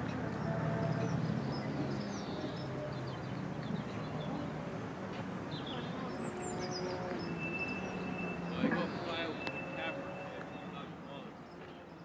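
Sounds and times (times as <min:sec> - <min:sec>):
small birds chirping and singing: 0:00.0 - 0:12.0.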